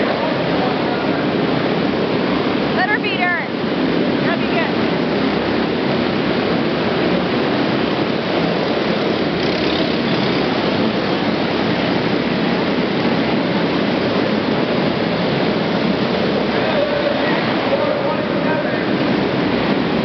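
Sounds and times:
kart engines racing: 3.8 - 20.0.

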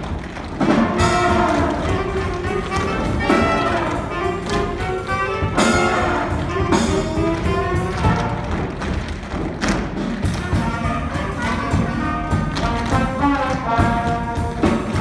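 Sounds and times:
live band with brass playing: 0.0 - 15.0.

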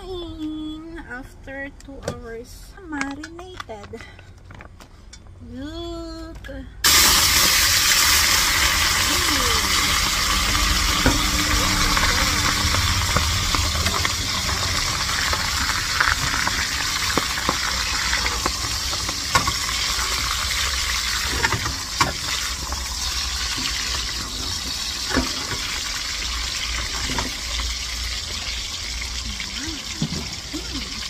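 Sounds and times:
fish frying in hot oil: 6.8 - 31.0.

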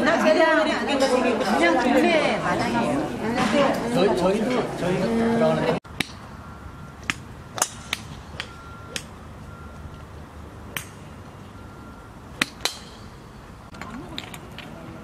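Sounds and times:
golf clubs striking balls: 5.9 - 9.2, 10.7 - 11.6, 12.3 - 14.8.

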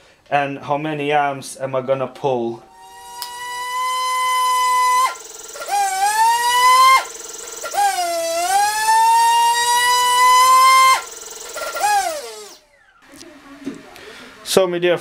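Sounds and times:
electric motor and propeller whining: 2.7 - 13.0.

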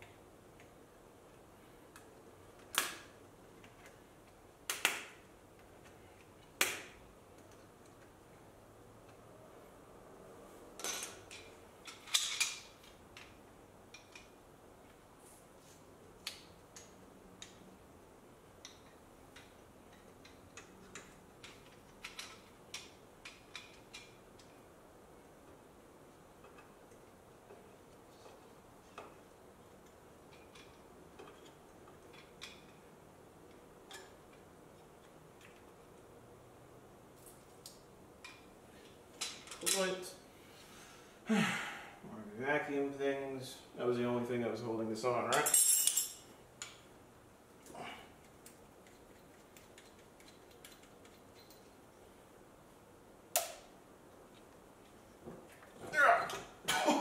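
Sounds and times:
faint clicks and handling noises: 0.0 - 9.3, 10.8 - 17.8, 18.4 - 36.2, 47.5 - 52.1
metallic clicks of hand wrench: 18.6 - 24.6.

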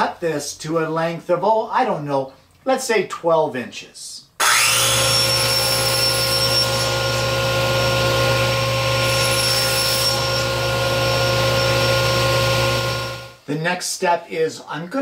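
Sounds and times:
table saw cutting board: 4.4 - 13.4.

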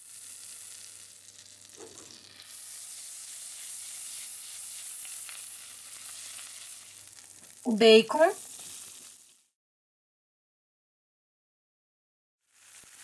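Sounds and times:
butter sizzling in a frying pan: 0.0 - 9.6, 12.4 - 13.0.

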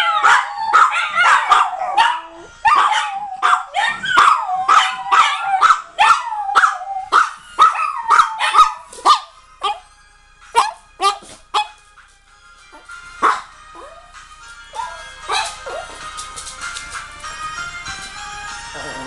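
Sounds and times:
dogs howling and yelping: 0.0 - 9.8.

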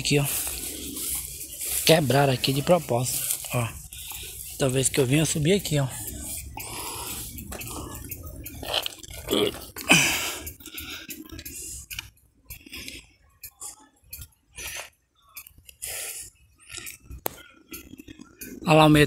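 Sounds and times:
footsteps on dry leaves: 0.0 - 5.4.

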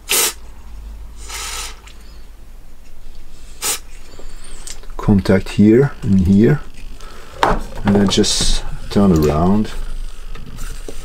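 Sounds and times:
aerosol spray hissing: 0.0 - 0.4, 1.2 - 1.9, 3.4 - 4.0.

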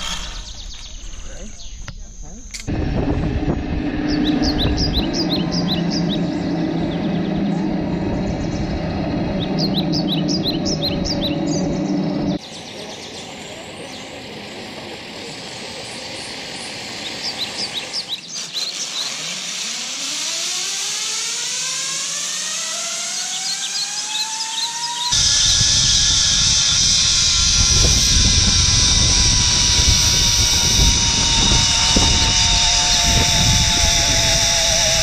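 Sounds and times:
pulley trolley whine on cable: 0.0 - 1.3, 2.6 - 35.0
steady low hum: 0.0 - 18.1, 25.1 - 35.0
birds chirping: 0.0 - 19.2, 23.1 - 35.0
hiss: 25.1 - 35.0.

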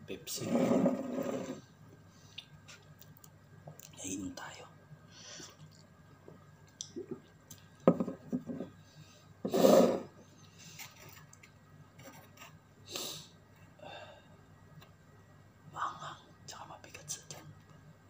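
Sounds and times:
drinking glass knocking on table: 7.9 - 8.6.

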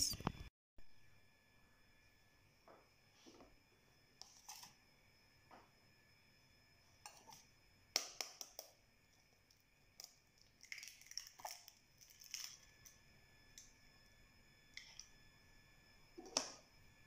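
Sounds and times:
eggshell crackling: 10.0 - 13.0.

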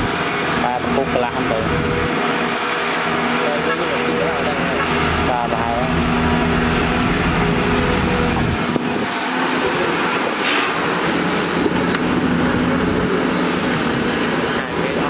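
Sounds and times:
excavator diesel engine rumbling: 0.0 - 15.0.

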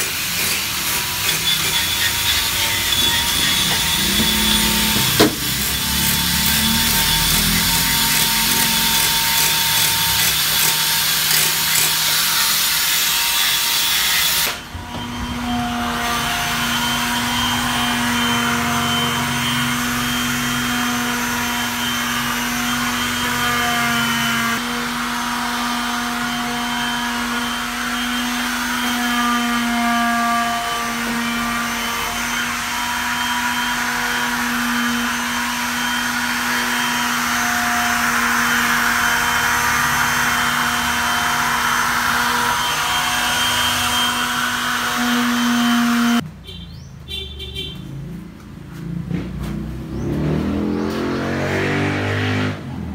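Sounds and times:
electric sander humming: 0.0 - 12.1
angle grinder whirring: 0.0 - 46.2.

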